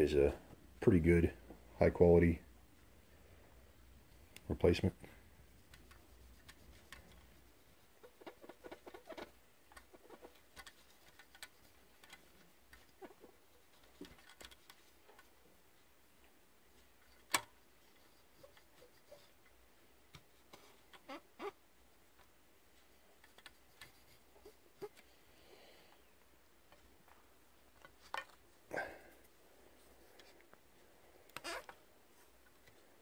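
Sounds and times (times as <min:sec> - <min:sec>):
swab scratchy rubbing: 0:05.6 - 0:09.3.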